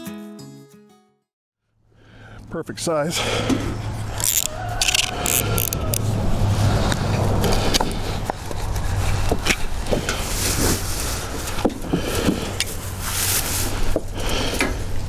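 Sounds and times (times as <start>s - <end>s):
pliers clicking on steel bars: 4.2s - 6.0s
low rumble: 5.8s - 11.0s.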